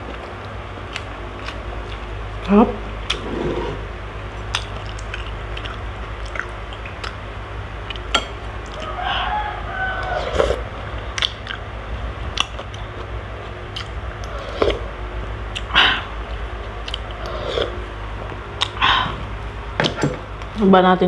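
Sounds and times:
chewing: 0.0 - 2.1, 3.0 - 7.2, 10.0 - 11.7, 12.3 - 14.9, 15.5 - 17.9, 18.6 - 19.3
low hum: 0.0 - 21.0
slurping broth and noodles: 3.1 - 3.9, 10.2 - 10.6, 14.2 - 14.9, 17.0 - 17.9.

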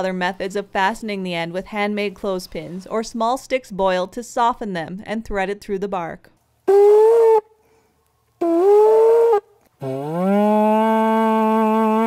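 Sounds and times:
bark trumpet notes: 6.7 - 7.5, 8.4 - 12.0.

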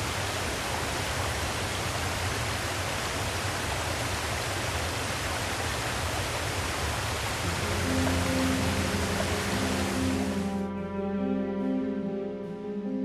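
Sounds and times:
water rushing over rocks: 0.0 - 10.6
music: 7.4 - 13.0.

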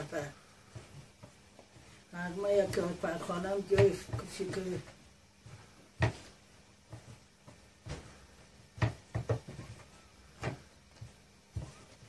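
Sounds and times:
rolling pin knocking on wooden board: 2.4 - 5.0, 5.9 - 12.0.

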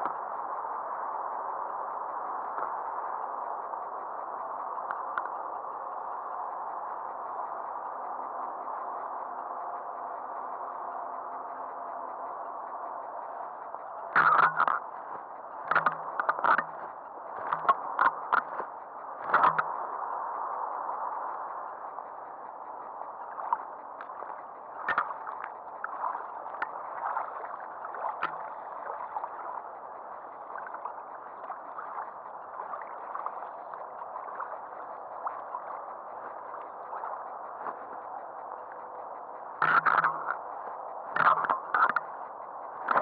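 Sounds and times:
light ticks: 0.0 - 0.2, 2.5 - 2.9, 4.8 - 5.5, 10.8 - 19.9, 21.4 - 43.0
waves lapping against boat: 11.4 - 20.0, 20.8 - 43.0.

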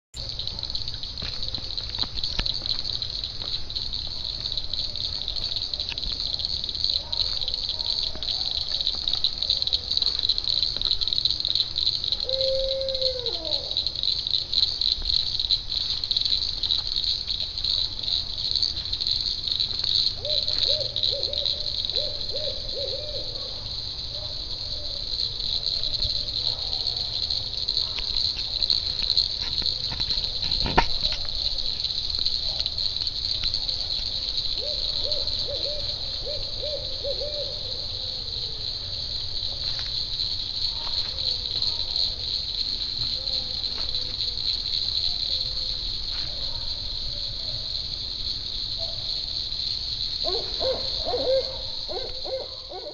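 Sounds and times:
crickets chirping: 0.1 - 52.9
owl hooting: 12.2 - 13.8, 20.2 - 23.3, 34.6 - 38.1, 50.2 - 52.9.

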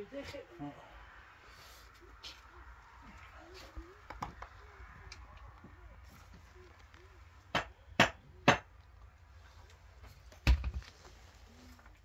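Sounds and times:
sharp knocks on cinder block: 7.5 - 8.7.

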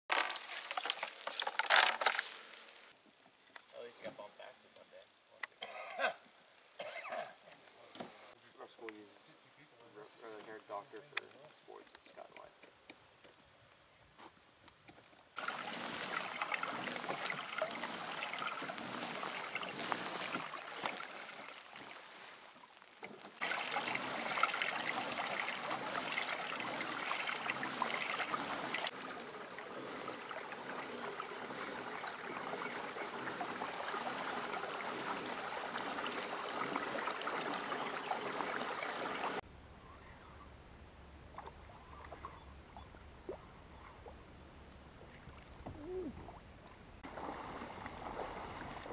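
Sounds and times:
water rushing and splashing: 15.4 - 39.4, 47.0 - 48.9.

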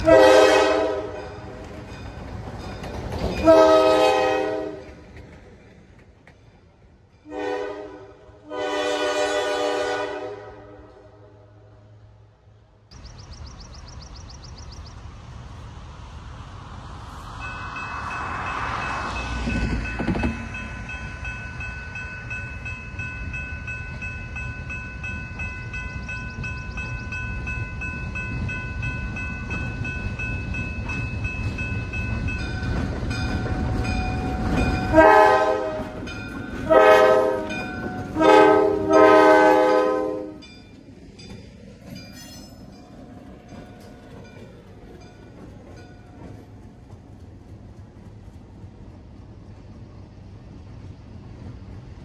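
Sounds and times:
locomotive horn blasts: 0.0 - 1.4, 3.4 - 4.8, 7.2 - 11.5, 34.8 - 40.5
diesel locomotive engine rumble: 0.0 - 52.0.

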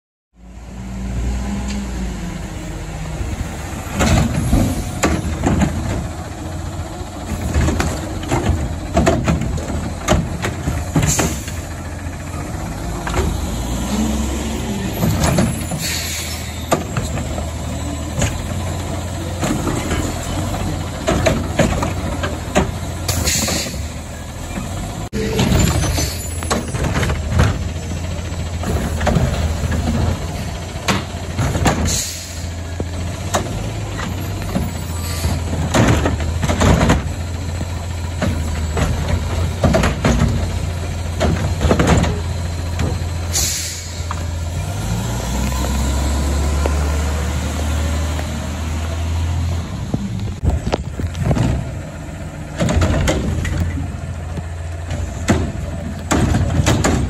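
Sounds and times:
diesel engine revving: 0.4 - 57.0
metal clanks of carts: 3.6 - 48.4, 49.2 - 57.0
air brake hisses: 15.8 - 16.6, 23.1 - 23.9, 31.8 - 32.6, 43.3 - 44.1.

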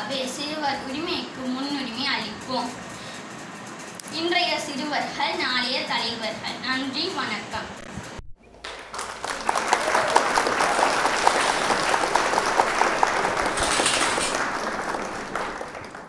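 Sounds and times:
crowd applauding: 8.6 - 16.0.

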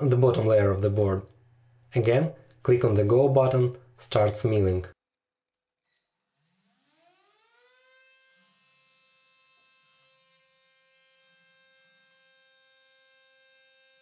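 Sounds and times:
spindle motor whine: 5.9 - 14.0.

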